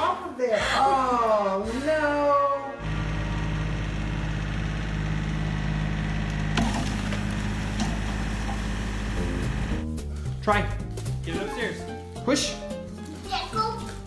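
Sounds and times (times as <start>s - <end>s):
tractor engine running under load: 2.8s - 9.8s.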